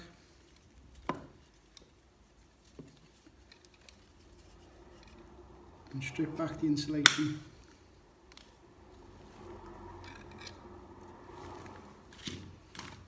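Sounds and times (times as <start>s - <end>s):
handling tools and cable: 0.0s - 6.0s, 9.9s - 13.0s.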